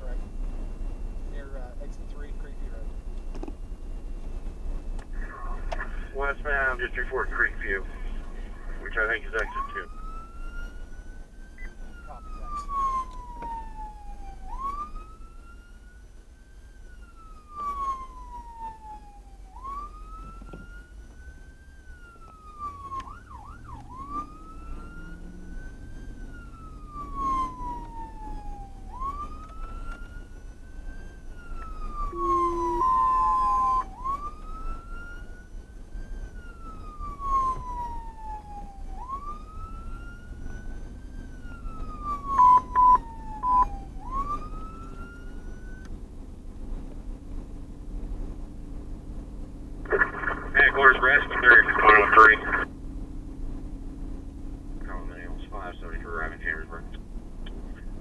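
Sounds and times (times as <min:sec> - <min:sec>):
emergency siren wailing: 0:00.0 - 0:58.0
engine and road rumble: 0:00.0 - 0:58.0
horn blasts: 0:32.1 - 0:33.0.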